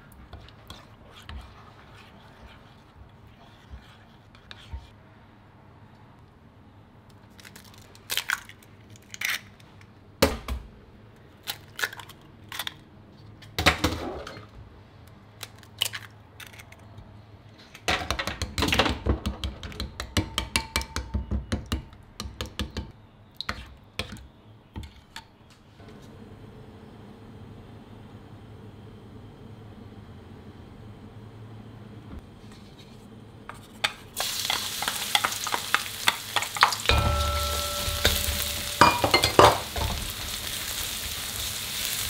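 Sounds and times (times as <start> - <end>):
steady low hiss: 34.2 - 42.0.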